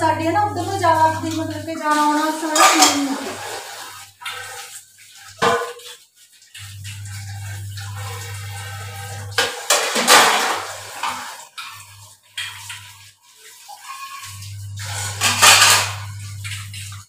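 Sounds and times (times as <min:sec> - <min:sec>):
low steady hum: 0:00.0 - 0:01.8
utensil clanking in steel sink: 0:00.0 - 0:06.0, 0:07.2 - 0:13.0, 0:13.6 - 0:17.0
water splashing: 0:00.0 - 0:17.0
dishes clattering: 0:02.4 - 0:03.7, 0:05.4 - 0:06.0, 0:09.3 - 0:11.8, 0:13.8 - 0:16.9.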